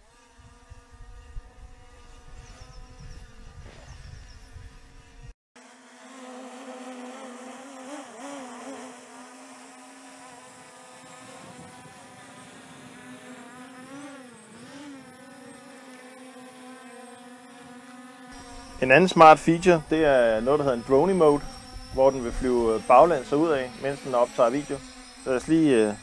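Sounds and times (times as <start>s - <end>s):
drone propellers buzzing: 0.0s - 26.0s
wind rumble on microphone: 0.1s - 5.3s, 11.0s - 13.3s, 21.4s - 22.7s.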